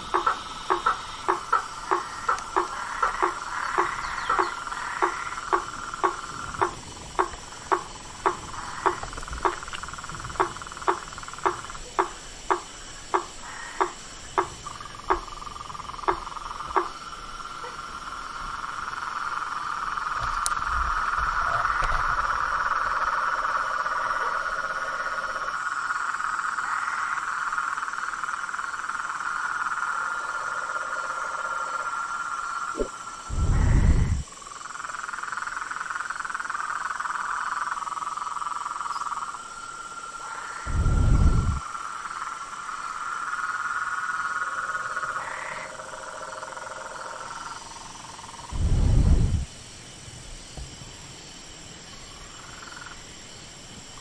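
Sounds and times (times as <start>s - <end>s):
frogs trilling: 0.0s - 49.5s, 51.8s - 54.0s
low frog call: 0.0s - 49.6s
low whoosh: 33.3s - 34.2s, 40.7s - 41.6s, 48.5s - 49.6s.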